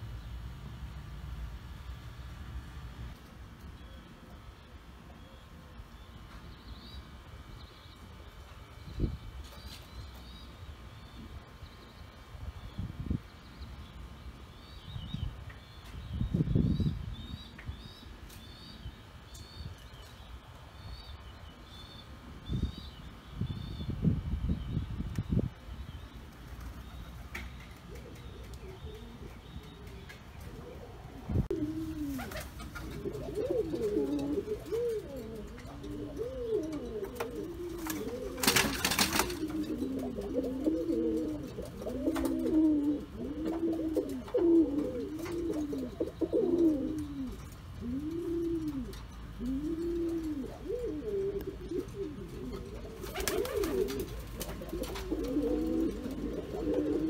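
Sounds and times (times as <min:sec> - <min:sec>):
pigeon cooing: 0:27.9 - 0:57.0.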